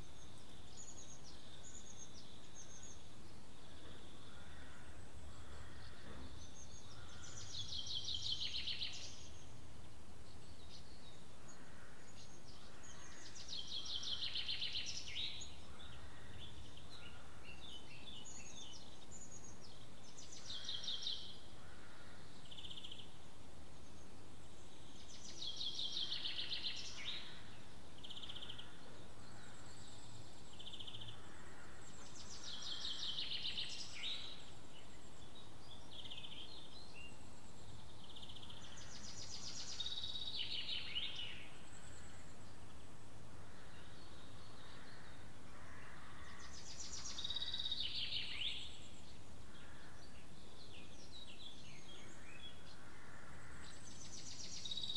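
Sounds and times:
faint bird chirps: 23.8 - 54.9.

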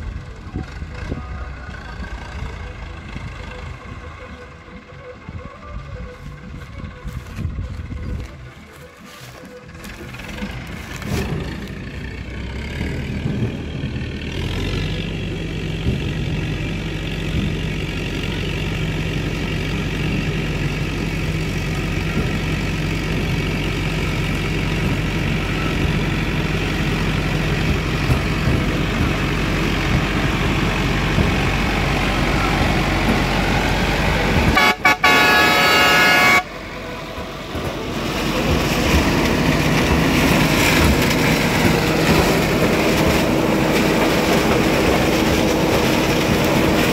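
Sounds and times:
tractor diesel engine under load: 0.0 - 46.9
loud horn blast: 34.2 - 37.1.

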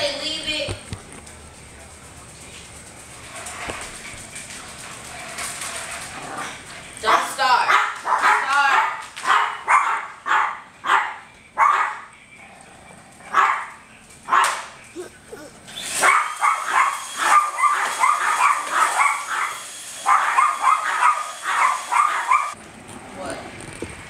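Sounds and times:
small dog barking and yapping: 7.1 - 12.0, 14.3 - 22.6.

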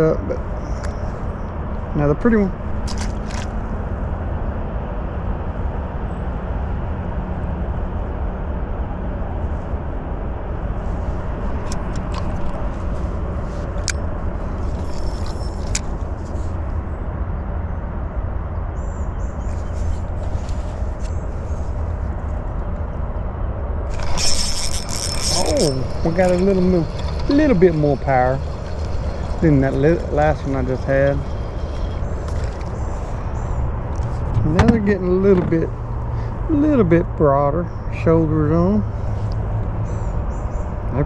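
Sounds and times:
steady low rumble: 0.0 - 40.9
fishing reel clicks: 23.9 - 32.7.

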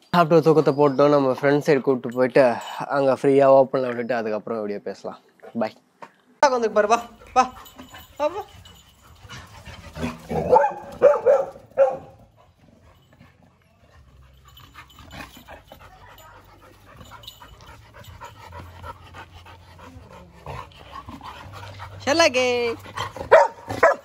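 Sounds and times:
dog panting: 6.9 - 24.0.

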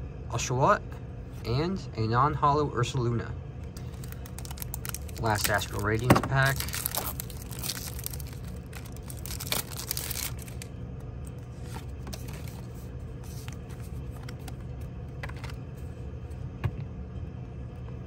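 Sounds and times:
foil pack crinkling and tearing: 3.8 - 10.7.

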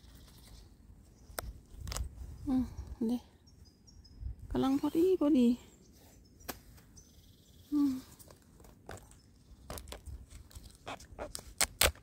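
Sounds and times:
rustling through ivy and bark: 7.7 - 12.0.

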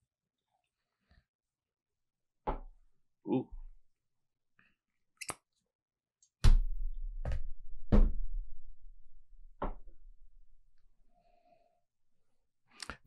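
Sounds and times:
dull knocks with low thud: 6.4 - 8.5.

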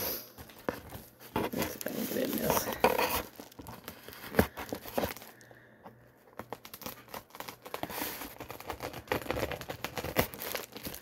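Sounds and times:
wrapping crinkling and rustling: 0.2 - 11.0
package wrapping tearing: 0.4 - 5.5, 6.4 - 11.0.

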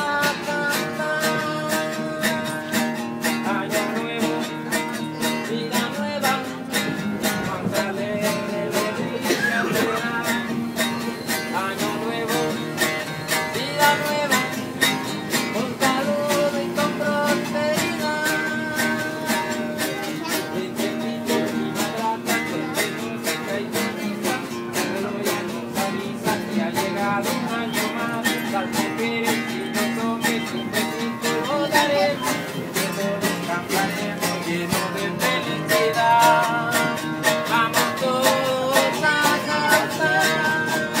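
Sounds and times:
acoustic guitar strumming: 0.0 - 41.0.

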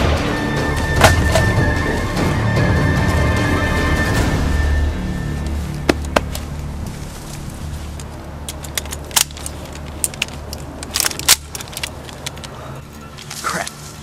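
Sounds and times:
film score music with low drone: 0.0 - 8.6, 11.8 - 14.0
sharp cracks: 8.0 - 12.5.

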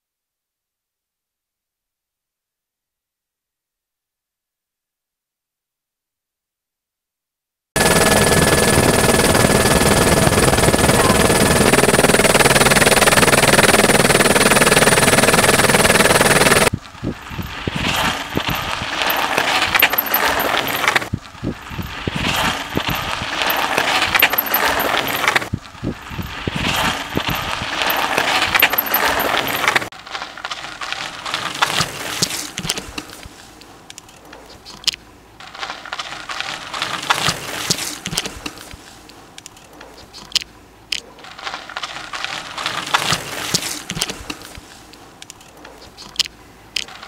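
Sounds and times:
bike chains clicking and rattling: 14.1 - 38.8
bike tyres crunching on gravel: 16.7 - 47.0.

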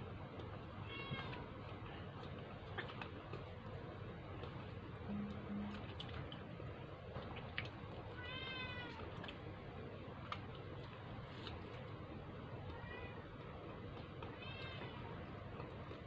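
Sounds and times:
low steady hum: 0.0 - 16.0
cat meowing: 0.8 - 1.4, 8.2 - 9.1, 14.4 - 15.1.

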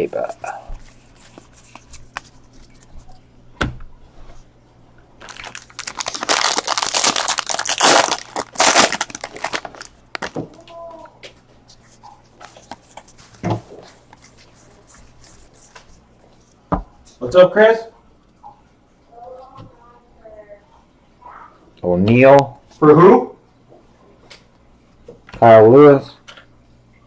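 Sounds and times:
cards clicking and rustling: 5.2 - 10.5
foil wrapper crinkling and tearing: 5.2 - 10.7.

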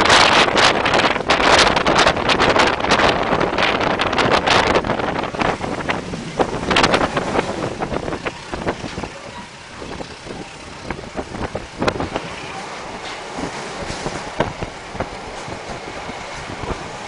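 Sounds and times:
wind rushing on microphone: 0.0 - 17.0
train wheels clattering on track: 12.0 - 17.0.

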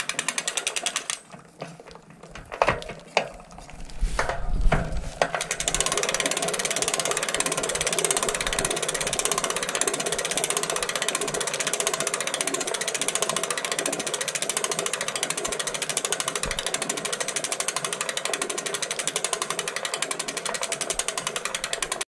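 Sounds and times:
bicycle hub ratchet clicking: 0.0 - 1.4, 5.2 - 22.0.

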